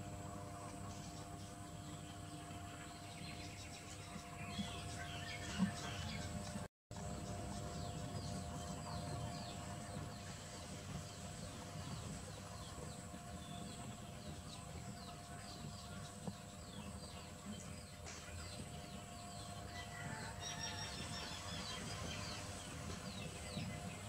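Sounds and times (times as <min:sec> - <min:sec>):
birds chirping: 0:00.0 - 0:24.0
faint steady hum: 0:00.0 - 0:24.0.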